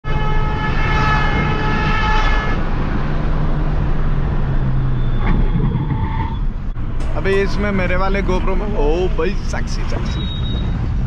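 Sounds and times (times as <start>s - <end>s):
car horn: 0.0s - 2.7s
car engine hum and road noise: 2.6s - 11.0s.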